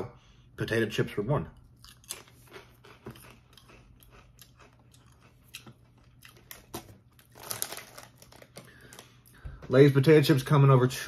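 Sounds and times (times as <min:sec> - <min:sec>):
person chewing chips: 0:01.6 - 0:09.4.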